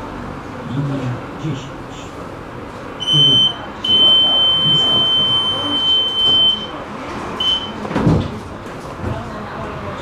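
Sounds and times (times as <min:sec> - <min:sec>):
tram door warning beeps: 0:03.0 - 0:06.8, 0:07.4 - 0:07.9.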